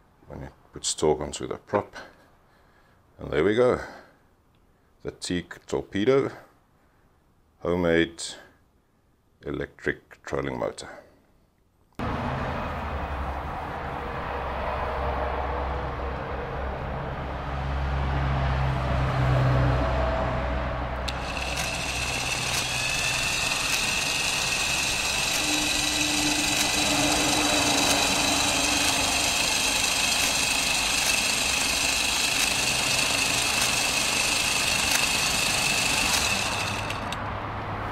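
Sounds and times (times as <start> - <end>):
electric motor whining: 21.0 - 37.2.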